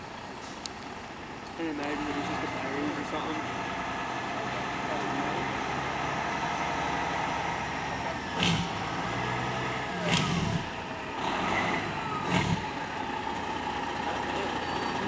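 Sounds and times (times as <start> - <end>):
fire engine running: 0.0 - 15.0.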